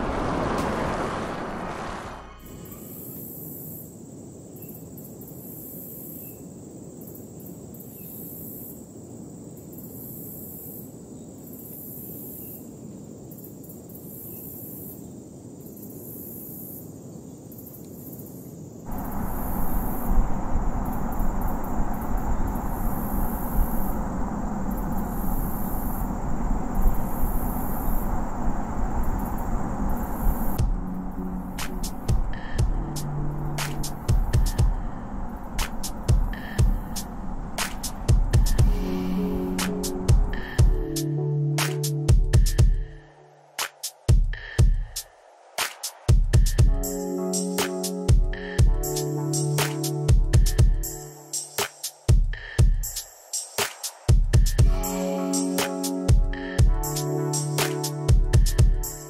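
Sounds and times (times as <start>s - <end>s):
insects chirring: 2.3s - 59.0s
loud low steady hum: 18.9s - 41.0s.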